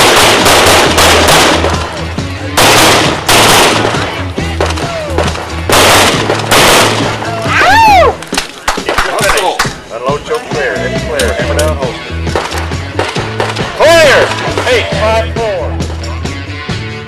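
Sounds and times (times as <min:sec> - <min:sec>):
pistol shots in bursts: 0:00.0 - 0:07.4, 0:12.2 - 0:14.7
background music: 0:00.0 - 0:17.0.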